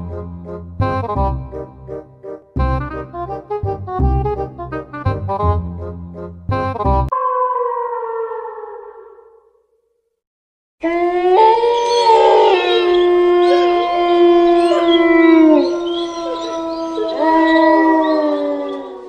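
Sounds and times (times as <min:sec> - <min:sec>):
overlapping howls: 0:10.8 - 0:19.0.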